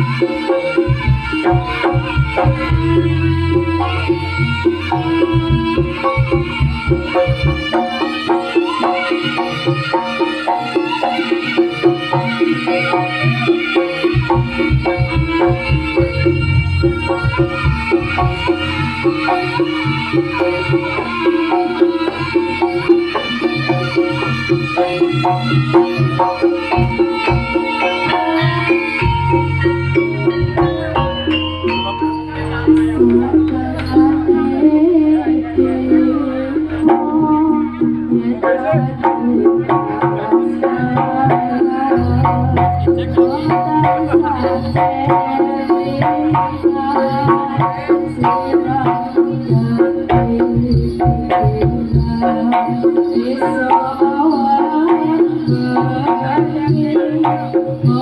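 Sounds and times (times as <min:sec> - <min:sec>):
hand-drum beats: 0:00.0 - 0:58.0
ringing gamelan instruments: 0:00.0 - 0:58.0
gong-chime notes: 0:27.8 - 0:35.0.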